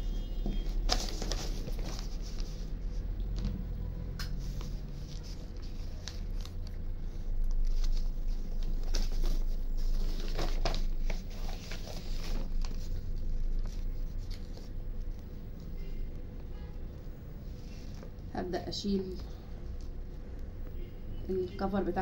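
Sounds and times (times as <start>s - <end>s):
contact paper rustling and crinkling: 0.4s - 3.7s, 4.3s - 16.1s.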